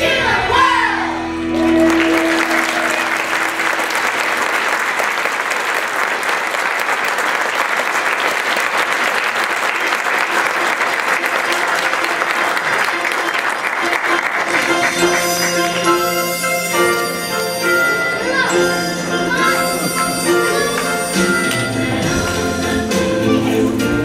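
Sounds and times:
audience applause: 1.5 - 16.0.

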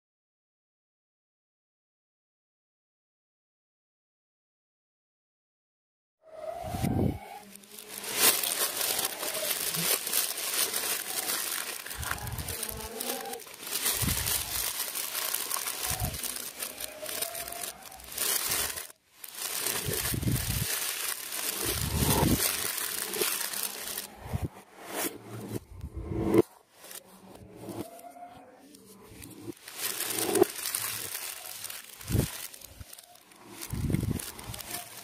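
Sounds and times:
plastic bag crinkling: 6.6 - 24.6, 28.7 - 35.0.

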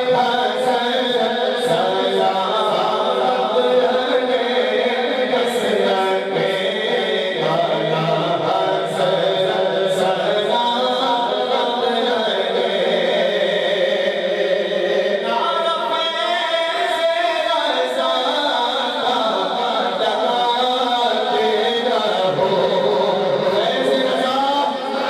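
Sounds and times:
chorus singing a cappella: 0.0 - 25.0.

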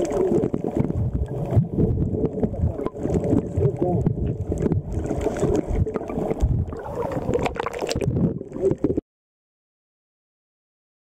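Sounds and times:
muffled water sloshing and bubbling: 0.0 - 9.0.

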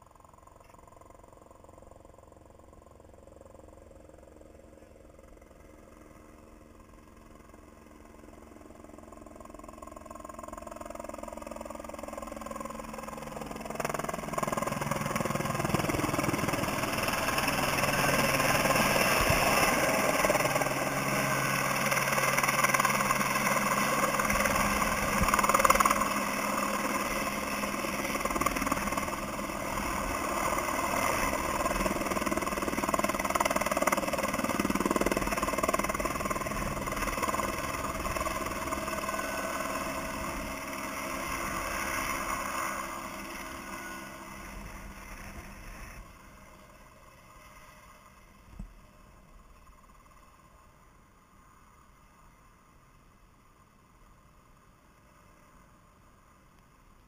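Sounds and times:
helicopter flying overhead: 0.0 - 50.8.

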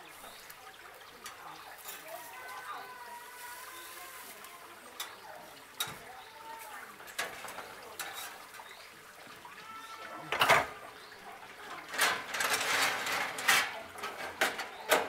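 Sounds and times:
steel grill grate clattering: 5.0 - 5.2, 5.8 - 6.1, 7.0 - 8.6, 11.6 - 15.0.

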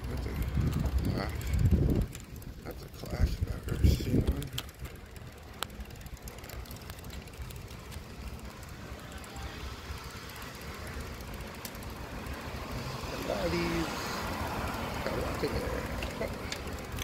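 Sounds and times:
wind buffeting microphone: 0.0 - 5.3
road rumble: 0.0 - 17.0
faint clicks: 4.3 - 8.1, 11.4 - 11.9.

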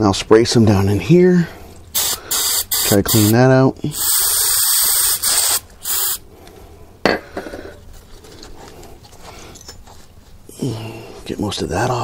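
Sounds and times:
aerosol spray hissing: 2.0 - 6.2.

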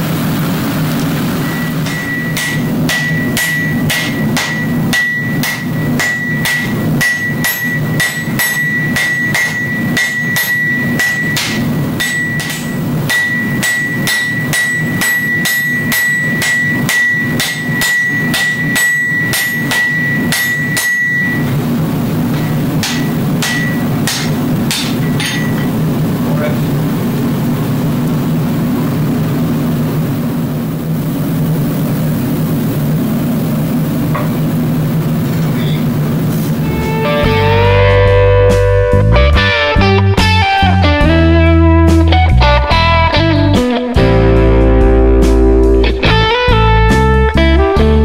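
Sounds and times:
steady low hum: 0.0 - 48.0
hammer blows on anvil: 1.4 - 21.6, 22.3 - 25.8
anvil ringing: 1.4 - 25.8.

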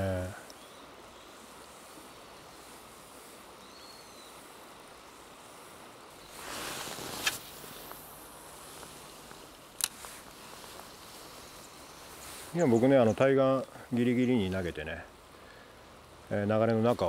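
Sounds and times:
river flow hiss: 0.0 - 17.0
reel bail click: 9.8 - 10.1.

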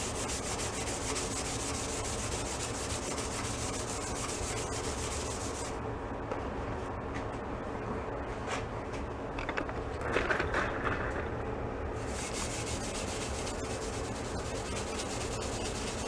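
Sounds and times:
steel wool scrubbing metal: 0.0 - 5.8, 12.0 - 16.0.

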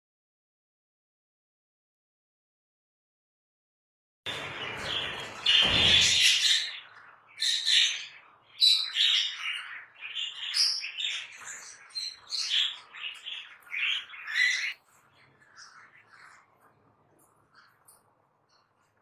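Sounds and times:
budgerigars chirping and squawking: 4.3 - 18.7.

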